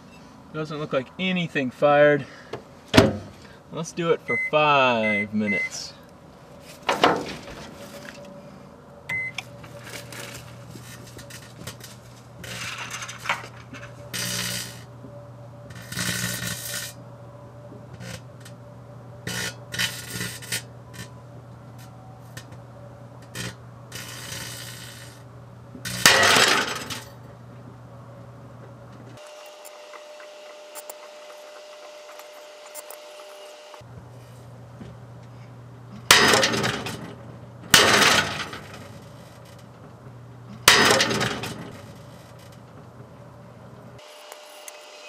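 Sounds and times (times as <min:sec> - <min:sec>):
microwave beep: 0:04.3 - 0:05.8, 0:09.1 - 0:09.4
short crackling bursts: 0:15.7 - 0:17.0, 0:19.2 - 0:21.2, 0:23.2 - 0:26.1
microwave humming: 0:27.0 - 0:39.1.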